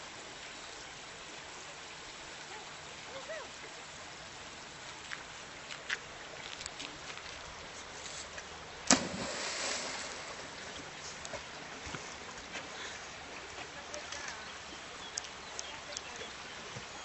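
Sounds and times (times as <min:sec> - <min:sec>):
low water hiss: 0:00.0 - 0:17.0
dog splashing into river: 0:08.8 - 0:10.7.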